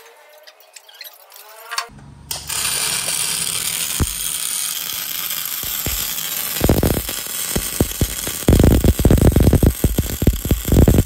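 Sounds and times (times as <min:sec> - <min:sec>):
arc welding hiss with pops: 0:02.3 - 0:11.0.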